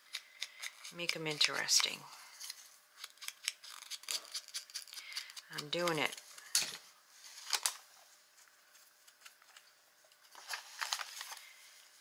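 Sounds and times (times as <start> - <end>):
scissors snipping paper: 0.0 - 1.9, 3.0 - 6.2
paper rustling: 7.2 - 9.6, 10.2 - 11.6.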